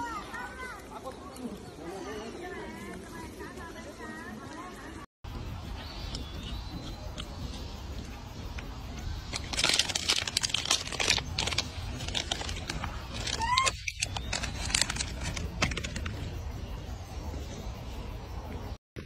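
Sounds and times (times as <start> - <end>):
plastic bag crinkling: 9.3 - 16.2.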